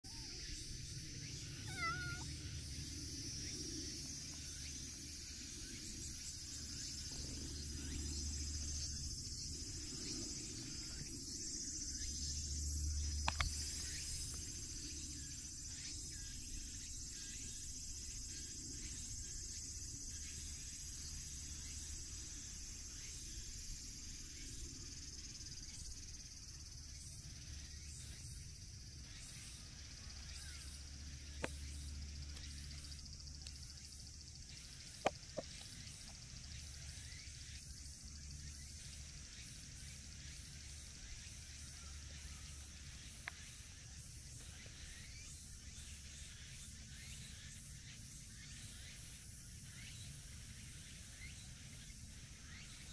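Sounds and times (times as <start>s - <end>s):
cat meowing: 1.6s - 2.3s
sharp click: 13.2s - 13.6s.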